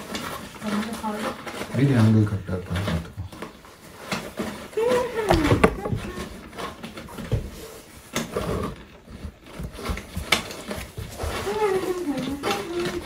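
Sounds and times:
packaging rustling: 0.0 - 13.0
plastic clicks and knocks: 5.3 - 7.4.

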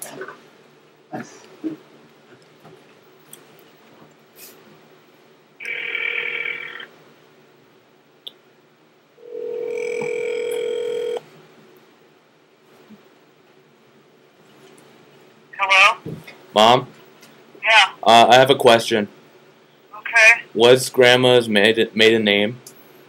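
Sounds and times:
telephone ringback tone: 5.6 - 6.9, 9.2 - 11.2.

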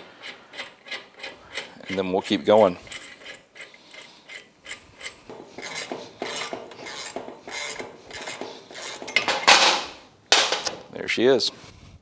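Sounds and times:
socket ratchet rasping: 0.0 - 9.5.

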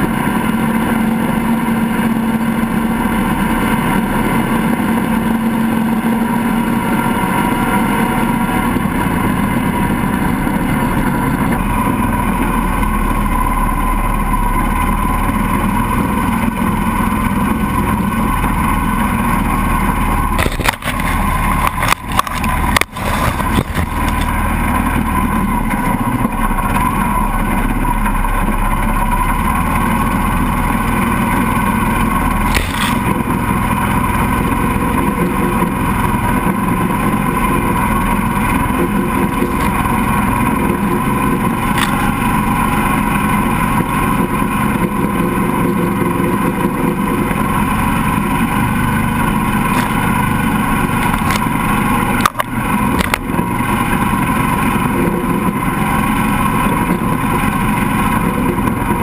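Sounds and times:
swamp buggy engine running: 0.0 - 59.0
tyres churning through water: 19.1 - 25.2, 31.1 - 44.7.

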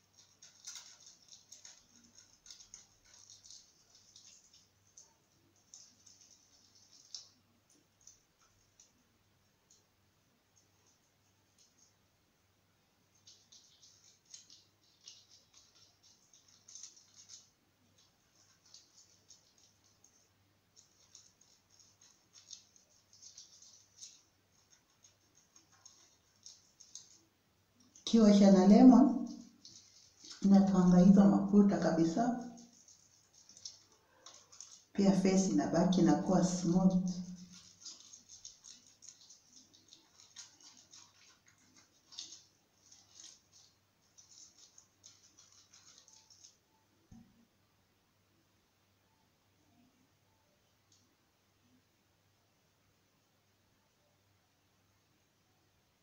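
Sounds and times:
lemon squishing on skin: 0.0 - 8.9, 13.1 - 46.6.

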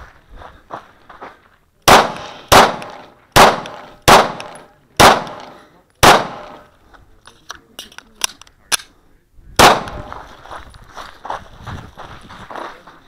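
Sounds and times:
pistol shots echoing: 1.9 - 6.7, 9.6 - 10.2.

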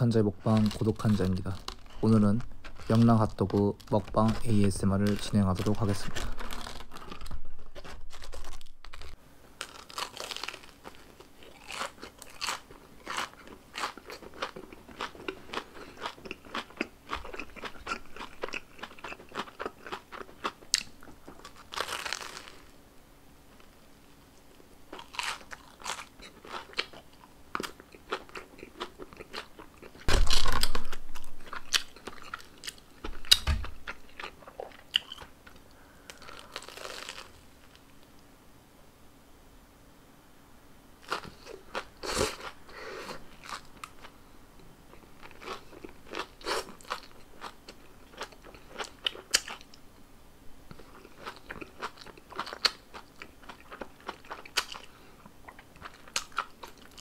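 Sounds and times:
crunching fried crust: 0.1 - 22.8, 24.9 - 37.9, 43.2 - 44.1, 44.9 - 49.8, 50.7 - 57.0
chewing: 7.8 - 22.6, 24.9 - 30.1.

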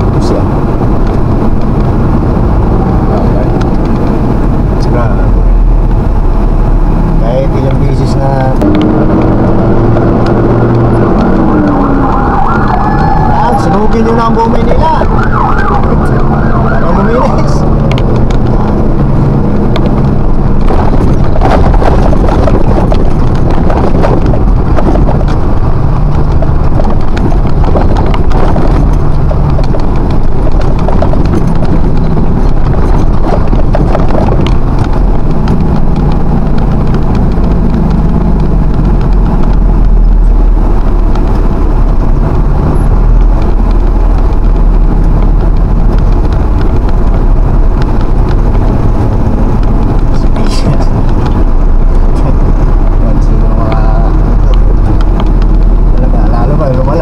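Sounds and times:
truck engine droning: 0.0 - 57.0
cab rattles and knocks: 17.7 - 57.0.

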